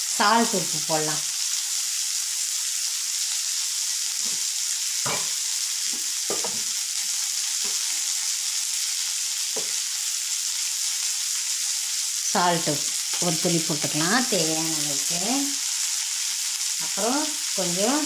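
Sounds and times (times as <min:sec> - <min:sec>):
high-pitched frying sizzle: 0:00.0 - 0:18.0.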